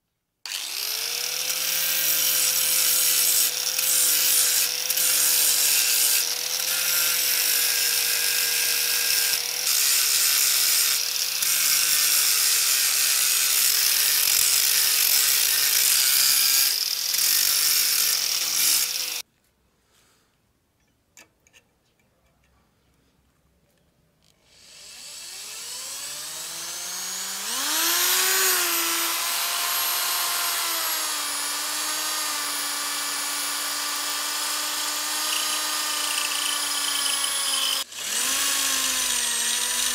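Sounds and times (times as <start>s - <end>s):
angle grinder grinding steel: 0.5s - 19.2s, 24.4s - 39.9s
electric drill whine: 0.5s - 19.2s, 24.5s - 39.9s.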